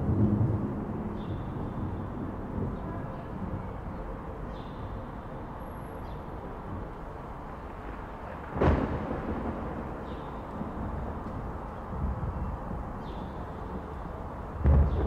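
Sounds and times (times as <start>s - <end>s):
low outdoor rumble: 0.0s - 15.0s
sudden loud boom: 14.6s - 15.0s.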